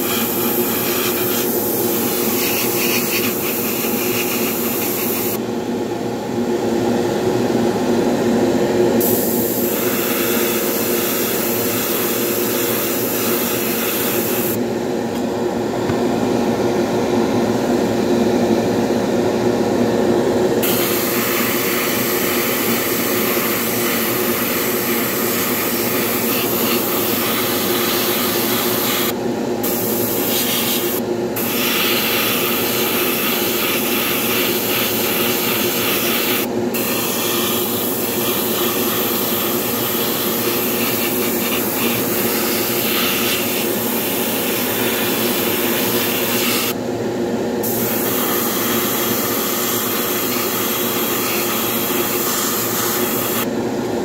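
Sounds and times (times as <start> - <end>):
airbrush spraying hiss: 0.0 - 5.4, 9.0 - 14.6, 29.7 - 46.8, 47.6 - 53.5.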